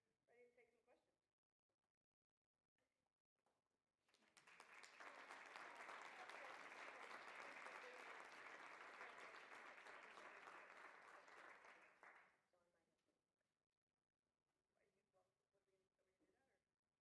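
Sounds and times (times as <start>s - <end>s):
audience applauding: 4.2s - 12.2s.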